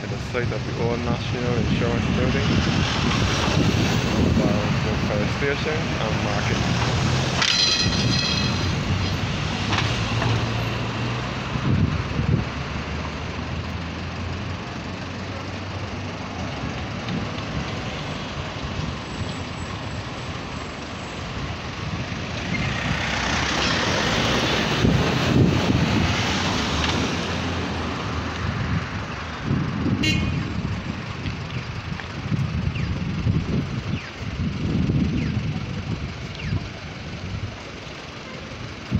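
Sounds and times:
cars and van driving past: 0.0s - 38.9s.

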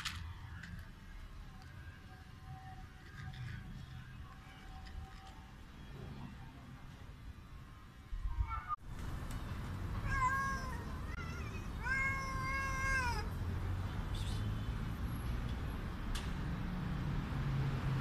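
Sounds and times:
cat meowing loudly: 10.0s - 13.3s.

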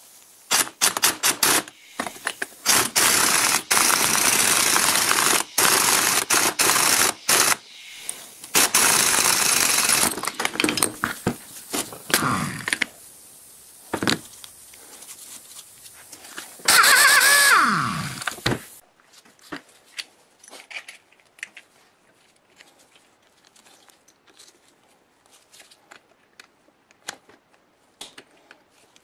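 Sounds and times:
impact wrench hammering: 0.5s - 7.6s, 8.5s - 11.0s.

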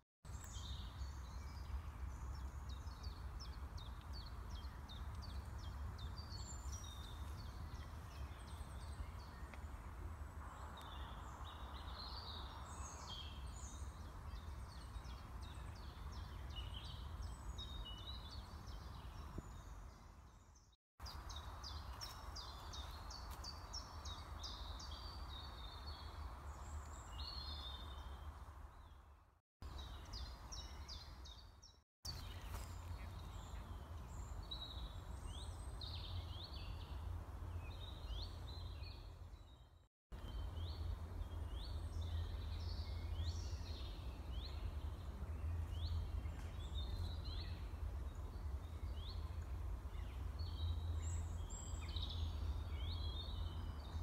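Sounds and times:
songbirds chirping and trilling: 0.3s - 54.0s
low wind rumble on microphone: 0.4s - 20.5s.

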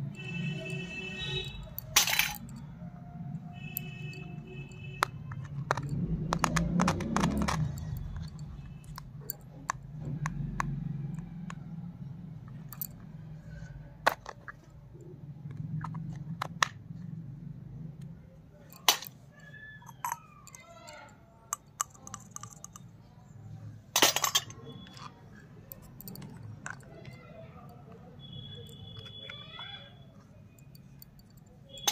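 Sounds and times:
plastic toy pieces clicking: 3.6s - 11.6s, 18.7s - 22.9s, 24.0s - 27.4s
plastic clacking on concrete floor: 5.0s - 8.3s.

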